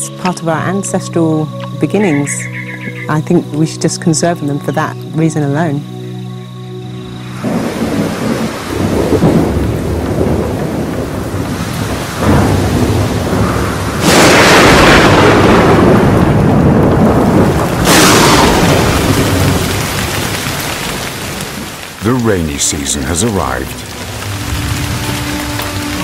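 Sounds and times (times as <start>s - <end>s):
heavy rain falling: 0.0s - 26.0s
rolling thunder: 7.3s - 22.3s
loud thunderclaps: 7.4s - 26.0s.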